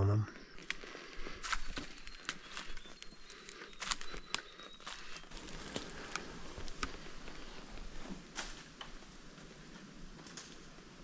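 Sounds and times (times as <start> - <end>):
twigs snapping: 0.6 - 7.5, 8.3 - 9.1, 10.1 - 10.8
footsteps in dry leaves: 0.6 - 8.7.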